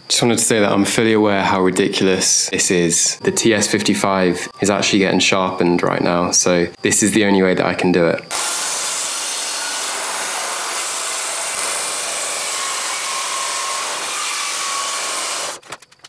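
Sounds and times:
circular saw cutting wood: 8.3s - 15.6s.

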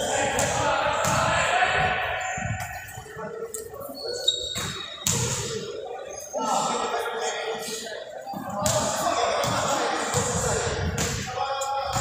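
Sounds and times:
players' voices: 0.0s - 12.0s
high squeak: 3.9s - 5.2s.

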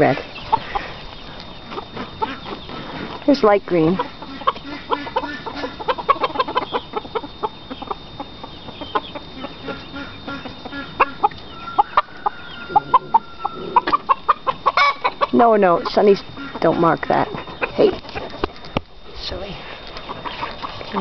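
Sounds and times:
chickens clucking: 0.0s - 21.0s
chicken high steady call: 3.8s - 16.6s.

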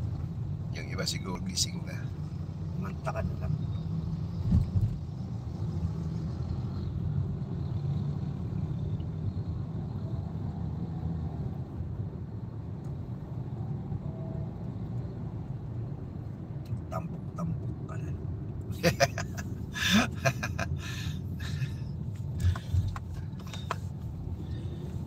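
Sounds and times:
road and engine rumble in car: 0.0s - 25.0s.

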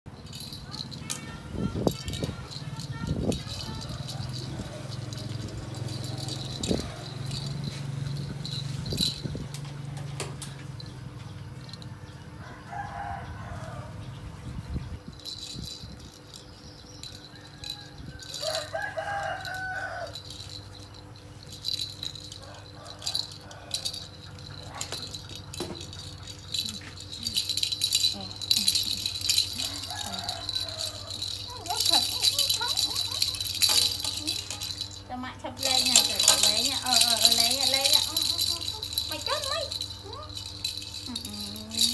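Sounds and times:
plastic rattle toy rattling: 0.1s - 10.9s, 11.6s - 11.9s, 15.0s - 41.9s.

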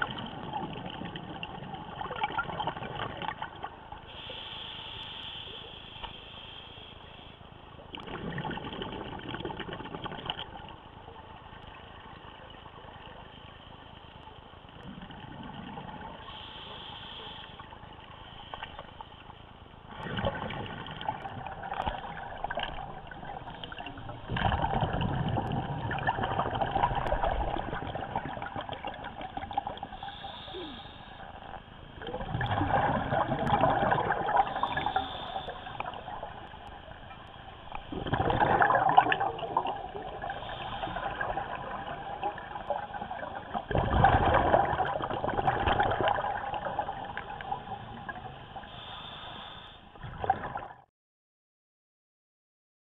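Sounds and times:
steady underwater rushing: 0.0s - 50.8s
underwater regulator bubbling: 19.9s - 31.3s, 32.0s - 48.2s.

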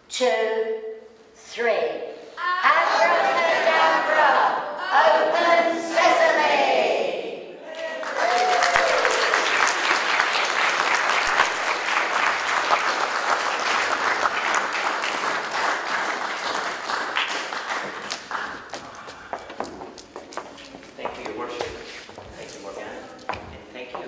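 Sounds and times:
audience applause: 7.8s - 21.4s.

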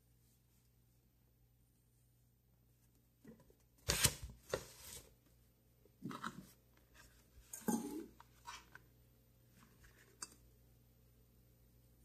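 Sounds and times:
cardboard and paper rustling: 3.7s - 5.2s.

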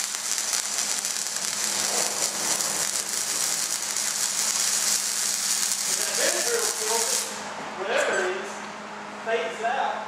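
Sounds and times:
arc welding crackle and hiss: 0.0s - 7.5s.

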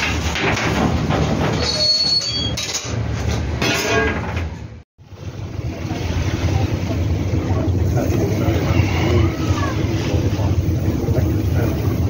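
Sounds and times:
metal scraping and clanking: 0.0s - 4.7s
high squeal of steel on steel: 1.5s - 3.0s
boiler rumble: 5.0s - 12.0s.

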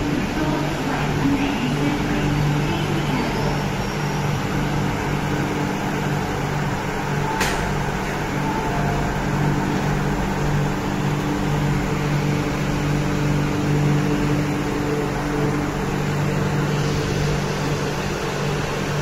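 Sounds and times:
train air-conditioning humming: 0.0s - 19.0s
sharp click: 7.4s - 7.8s.

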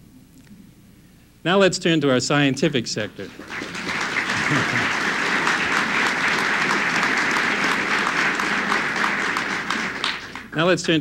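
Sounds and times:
audience applauding: 3.1s - 10.7s.

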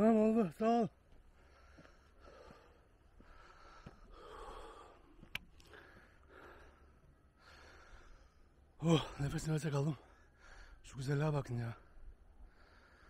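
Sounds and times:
man breathing hard: 1.3s - 9.2s, 10.0s - 10.9s, 11.8s - 13.0s.

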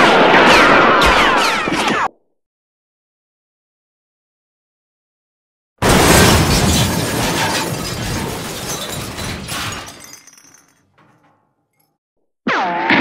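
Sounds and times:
glass shattering: 5.8s - 11.9s
glass shards clattering and tinkling: 6.5s - 11.3s.

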